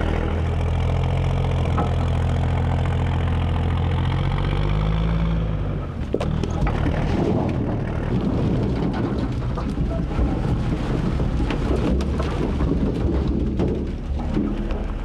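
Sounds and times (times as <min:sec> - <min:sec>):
diesel engine running: 0:00.0 - 0:15.0
firewood clattering into steel box: 0:06.1 - 0:15.0.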